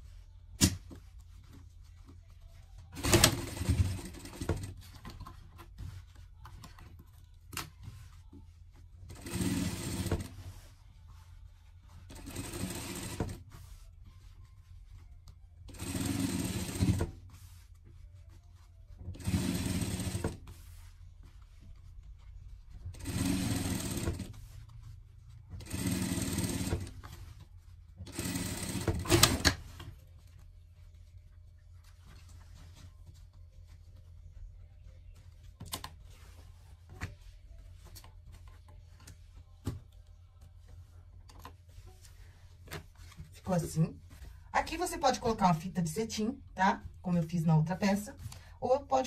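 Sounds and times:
sewing machine stitching: 3.0s - 5.0s, 9.1s - 10.4s, 12.1s - 13.4s, 15.7s - 17.2s, 19.1s - 20.4s, 22.9s - 24.4s, 25.6s - 27.0s, 28.0s - 29.6s.

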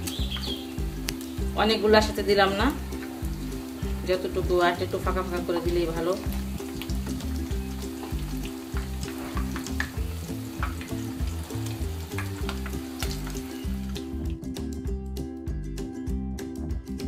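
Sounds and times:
food sizzling in hot oil: 0.0s - 14.4s
soft background music: 0.0s - 17.0s.

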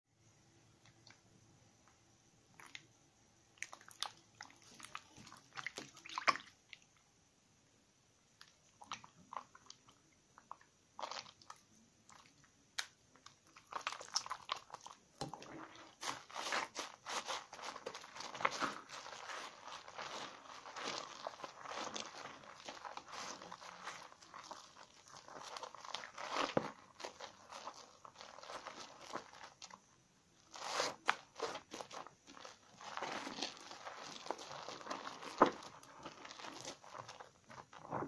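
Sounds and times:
sponge scrubbing soap: 3.6s - 6.9s, 13.5s - 38.0s
wet soap squelching in hands: 3.6s - 7.0s, 8.4s - 38.0s.

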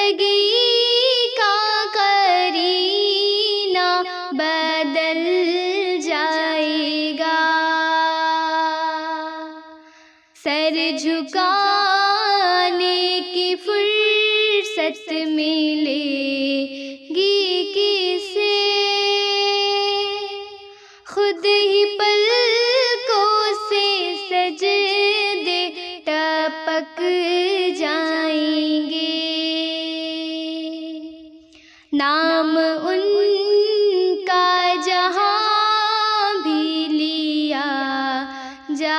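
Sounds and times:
girl singing devotional song: 0.0s - 38.9s.

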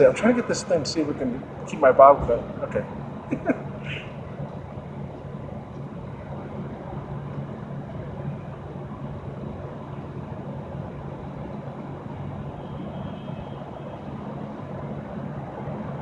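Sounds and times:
city street traffic: 0.0s - 16.0s.

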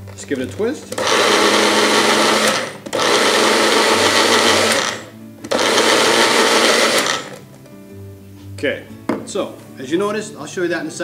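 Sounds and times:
blender motor chopping: 1.0s - 7.4s.

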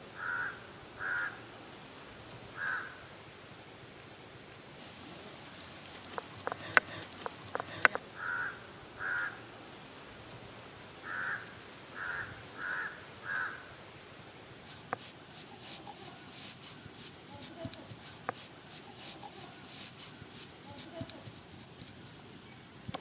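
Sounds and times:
crow cawing: 0.2s - 1.4s, 2.6s - 3.1s, 6.1s - 9.4s, 11.0s - 13.7s.

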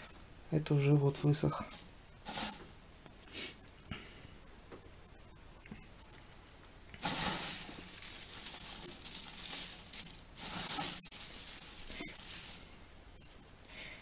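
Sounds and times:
dry leaves rustling and crackling: 7.0s - 13.7s.

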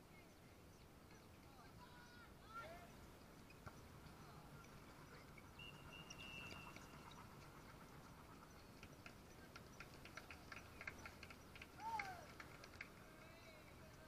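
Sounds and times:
distant game ambience: 0.0s - 14.0s
thin high tone: 3.8s - 9.8s.

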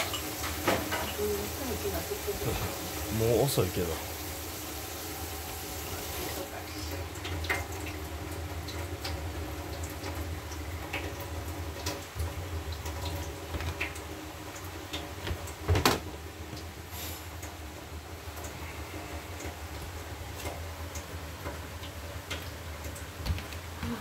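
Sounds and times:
kitchen hiss: 0.0s - 7.0s, 16.8s - 17.4s.

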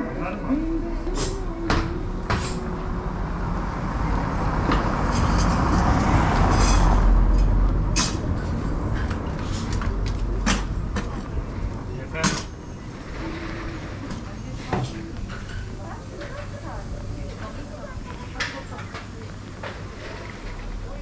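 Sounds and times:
passing motor vehicle rumble: 0.0s - 21.0s.

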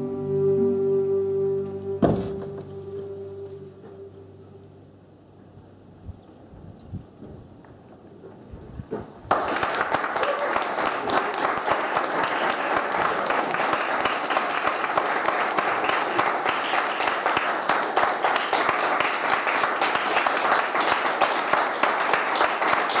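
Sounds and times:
audience applauding: 9.2s - 23.0s.

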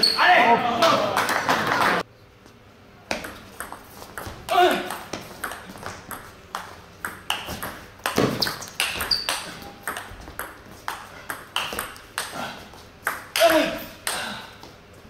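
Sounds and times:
ping pong ball clicking: 4.9s - 12.3s
shoes squeaking on floor: 7.4s - 10.8s.

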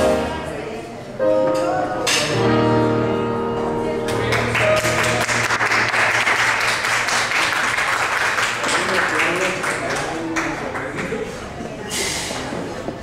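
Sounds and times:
audience applause: 4.1s - 11.6s.

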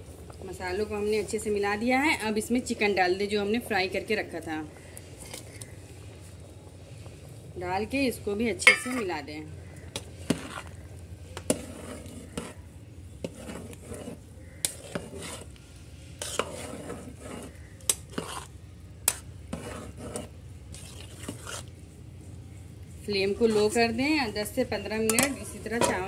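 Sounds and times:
spoon stirring rice: 8.6s - 22.0s, 22.9s - 26.0s
spoon clinking against steel pot: 25.0s - 26.0s.

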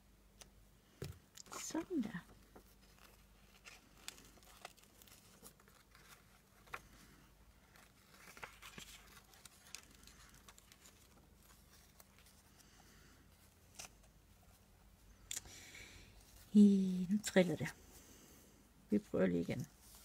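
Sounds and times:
paper and ribbon rustling: 1.4s - 14.7s, 19.3s - 20.0s.

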